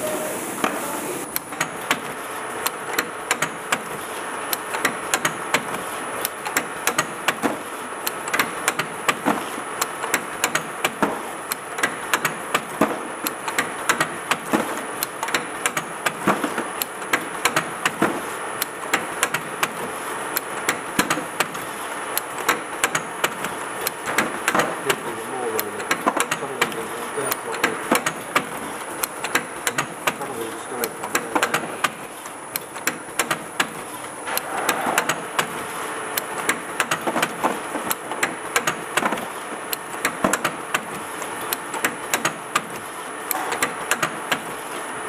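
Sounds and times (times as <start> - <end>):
capping machine whirring: 0.0 - 45.0
sharp mechanical clicks and clacks: 1.2 - 45.0.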